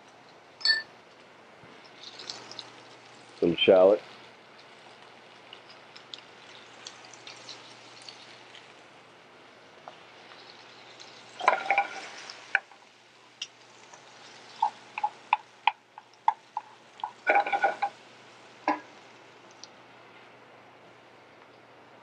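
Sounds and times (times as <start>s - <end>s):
light steady sizzle: 0.0s - 22.0s
metal tongs clicking on a pan: 14.6s - 17.9s.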